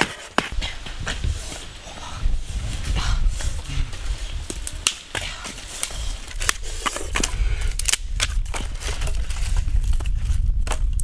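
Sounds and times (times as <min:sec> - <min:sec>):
dry wooden sticks clacking: 0:04.4 - 0:09.4.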